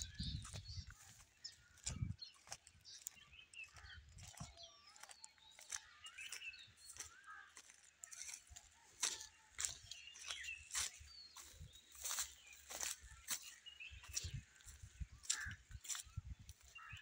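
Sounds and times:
footsteps crunching through dry stalks: 0:00.0 - 0:17.0
small birds chirping: 0:00.0 - 0:17.0.

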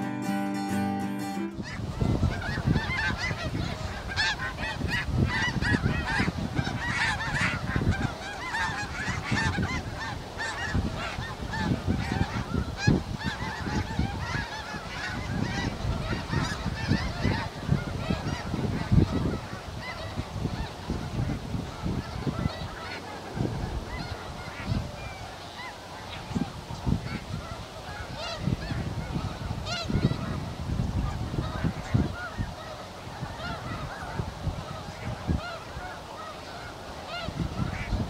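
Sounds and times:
geese honking: 0:00.0 - 0:38.0.

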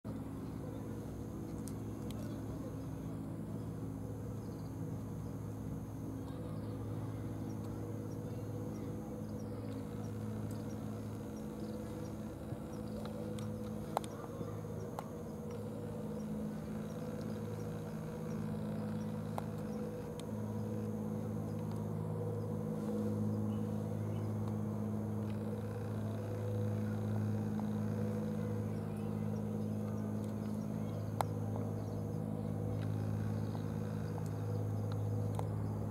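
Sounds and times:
low engine hum: 0:00.1 - 0:35.9
faint clicks: 0:01.4 - 0:02.4, 0:09.6 - 0:21.9, 0:24.2 - 0:35.7.

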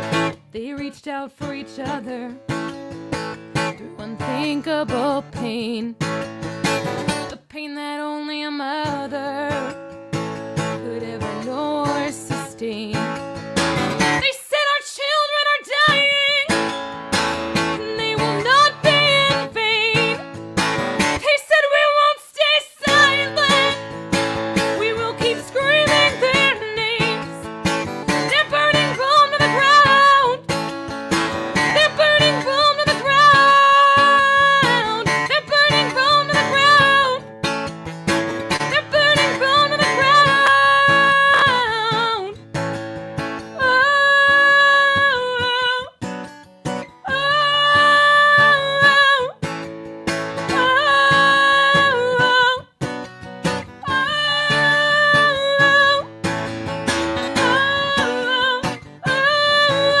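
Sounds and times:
strummed acoustic guitar: 0:00.0 - 1:00.0
woman singing: 0:00.0 - 1:00.0.

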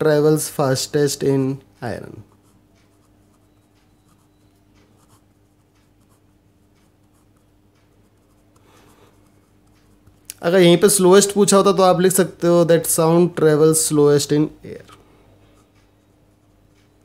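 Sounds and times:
marker pen scratching on paper: 0:02.2 - 0:10.2.

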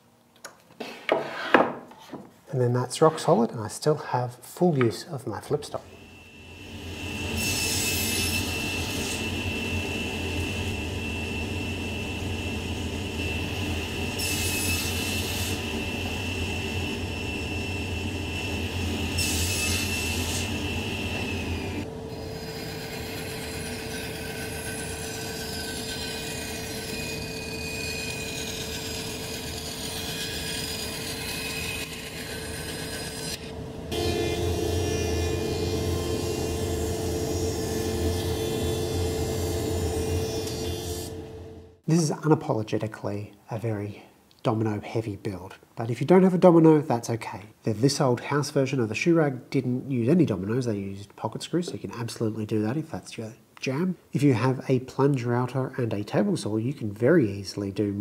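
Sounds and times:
table saw cutting wood: 0:05.9 - 0:41.4
thickness planer running: 0:06.7 - 0:41.8
bandsaw running: 0:18.5 - 0:41.2.

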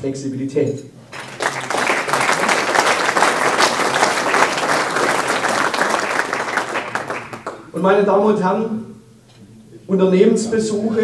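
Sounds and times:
audience applauding: 0:01.1 - 0:07.7.

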